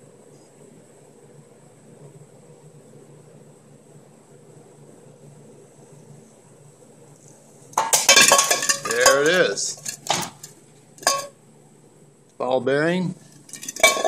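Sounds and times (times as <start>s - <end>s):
ball rattling and rolling in pot: 7.7s - 11.4s, 13.2s - 14.0s
steel ball clanging in metal pot: 7.8s - 11.4s, 13.5s - 14.0s.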